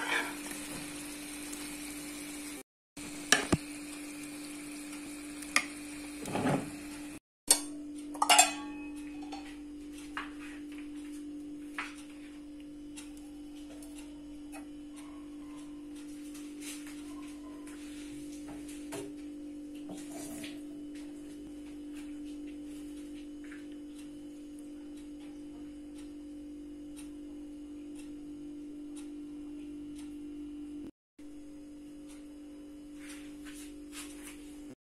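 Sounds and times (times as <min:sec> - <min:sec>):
scrape in frying pan: 0:00.0 - 0:00.9
plate clinking: 0:07.5 - 0:09.4.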